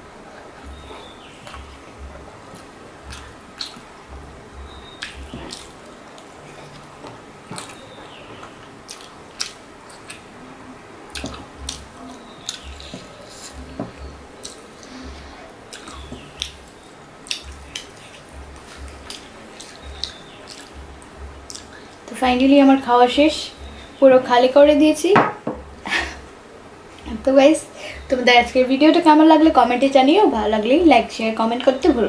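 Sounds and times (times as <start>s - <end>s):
wet chewing and lip smacks: 0.7s - 3.9s, 4.7s - 10.3s, 11.1s - 15.0s, 15.6s - 22.0s.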